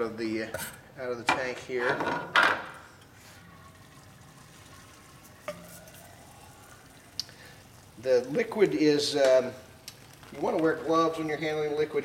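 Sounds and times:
liquid nitrogen hissing: 0:03.1 - 0:12.0.

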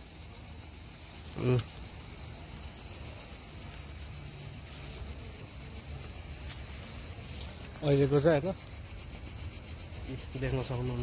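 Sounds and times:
insects buzzing: 0:00.0 - 0:11.0.

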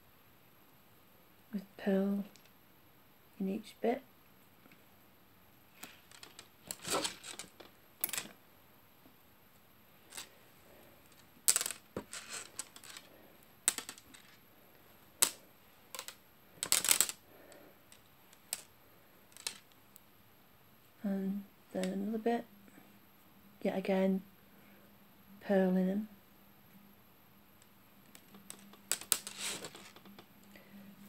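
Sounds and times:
lace clicking and rustling: 0:05.7 - 0:08.4, 0:10.0 - 0:10.4, 0:11.0 - 0:14.4, 0:15.2 - 0:18.7, 0:19.3 - 0:19.8, 0:28.0 - 0:30.3
lace brushing on table: 0:05.8 - 0:08.2, 0:11.6 - 0:13.1, 0:29.1 - 0:30.1.

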